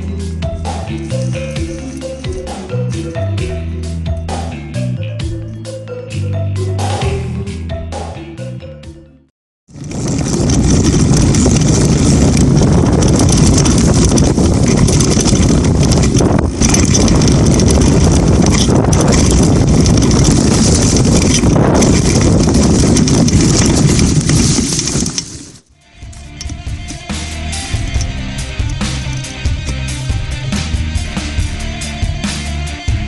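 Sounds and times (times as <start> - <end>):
wind rushing over microphone: 9.7 - 25.7
bike tyres on dirt: 9.7 - 30.8
bike knocking over bumps: 9.8 - 25.6.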